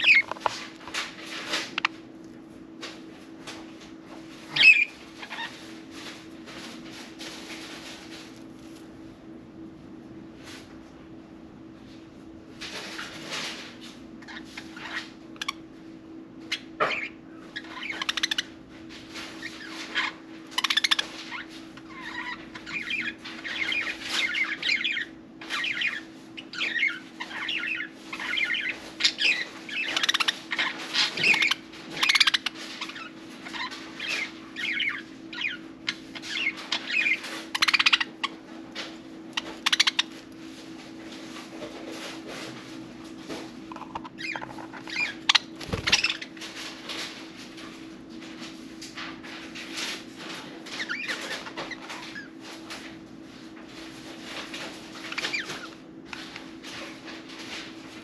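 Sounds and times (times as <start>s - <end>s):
budgerigars chattering: 21.9s - 38.3s, 39.4s - 40.2s.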